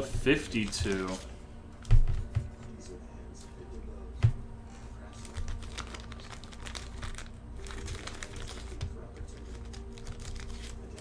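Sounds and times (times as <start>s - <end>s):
thin plastic crinkling: 0.5s - 1.4s, 5.1s - 11.0s.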